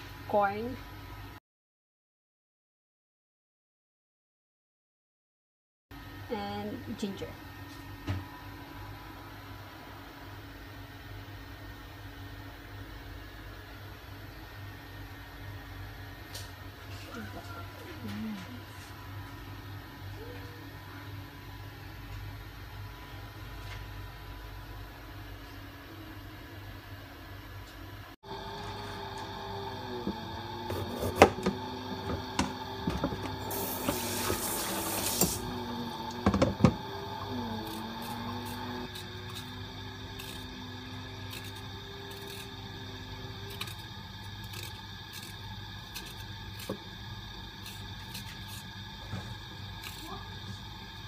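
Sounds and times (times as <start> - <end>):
low mechanical hum: 0.0 - 1.4, 6.0 - 51.0
running water hissing: 32.8 - 42.6.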